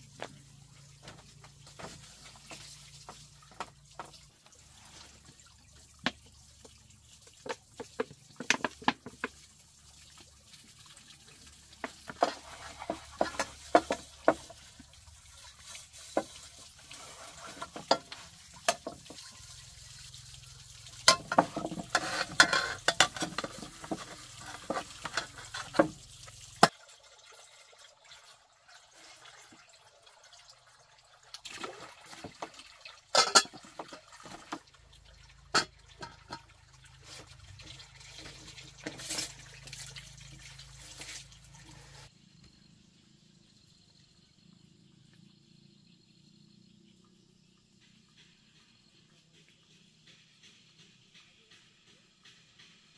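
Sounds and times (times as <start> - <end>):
water pouring into basin: 1.7 - 42.1
metal pot knocking and clinking: 11.8 - 14.7, 17.6 - 19.2, 21.0 - 26.0, 33.1 - 34.4, 35.5 - 36.5.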